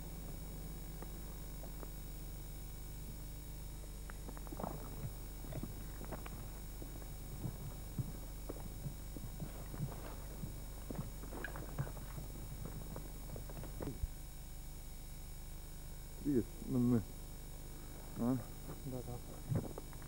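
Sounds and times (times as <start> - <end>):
steady low hum: 0.0 - 20.0
footsteps on wet gravel: 4.3 - 14.1.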